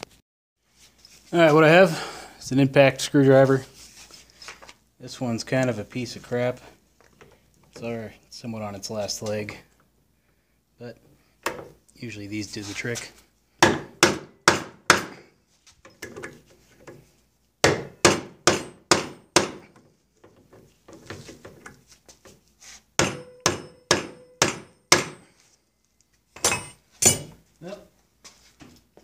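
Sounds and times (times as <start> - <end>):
hammer striking impact screwdriver: 23.0 - 25.2.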